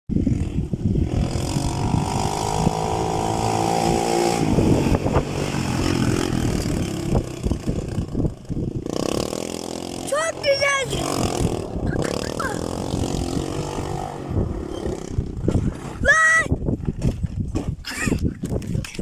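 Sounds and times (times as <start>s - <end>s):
atv engine revving: 0.1s - 16.2s.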